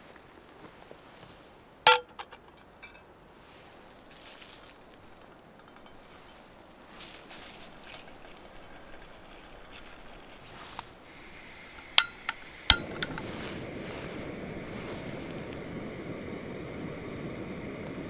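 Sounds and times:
gas burner rushing: 0:10.6 - 0:18.0
gas valve hissing: 0:10.7 - 0:18.0
igniter clicks: 0:11.1 - 0:18.0.

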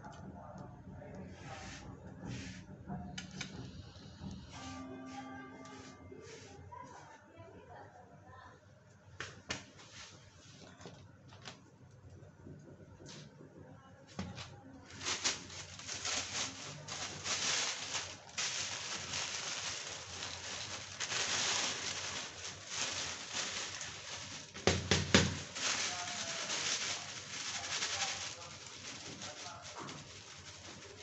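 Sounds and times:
peanuts roasting crackling hiss: 0:15.0 - 0:31.0.

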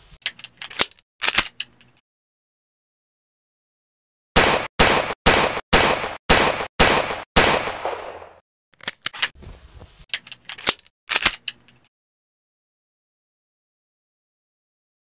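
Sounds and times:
pistol shots: 0:04.4 - 0:08.4
pistol reloading clicks: 0:10.1 - 0:11.9.

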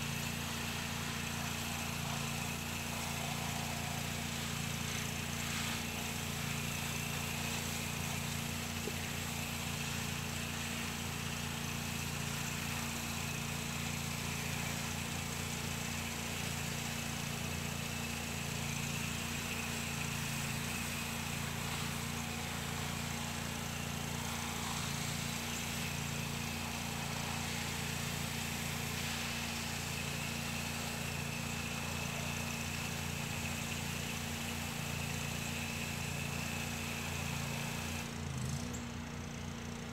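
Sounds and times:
water spraying on siding: 0:00.0 - 0:38.2
pressure washer engine running: 0:00.0 - 0:39.9.

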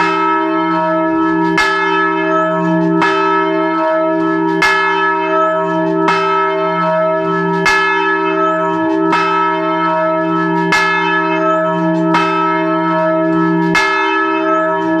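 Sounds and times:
large church bell ringing: 0:00.0 - 0:15.0.

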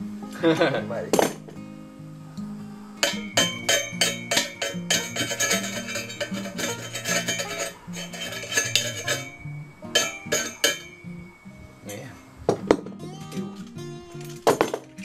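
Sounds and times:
metallic cowbell-like beat: 0:03.0 - 0:12.7.

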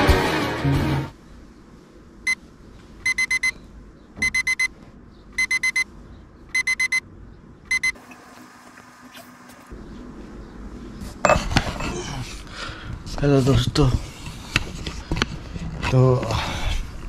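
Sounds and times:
alarm clock beeping: 0:03.0 - 0:03.6, 0:04.2 - 0:04.7, 0:05.4 - 0:05.9, 0:06.5 - 0:07.0, 0:07.7 - 0:08.0.

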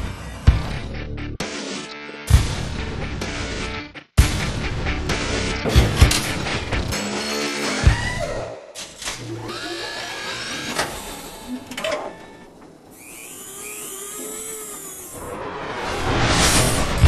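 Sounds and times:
machine whirring with whines: 0:09.3 - 0:15.6.

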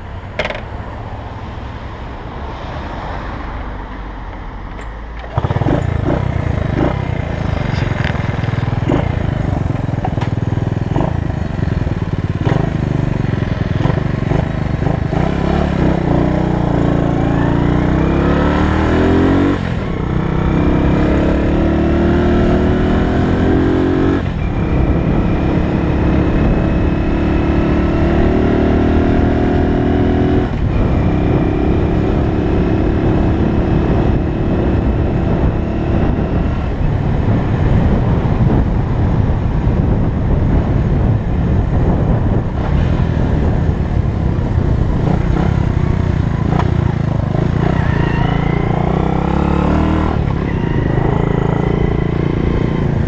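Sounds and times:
road noise: 0:00.0 - 0:53.0
motorcycle engine running: 0:05.2 - 0:28.4, 0:29.1 - 0:53.0.

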